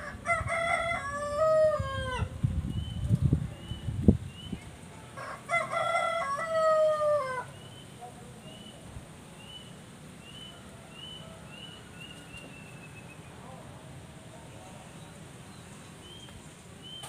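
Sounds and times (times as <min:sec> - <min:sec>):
rooster crowing: 0:00.0 - 0:02.3, 0:05.2 - 0:07.6.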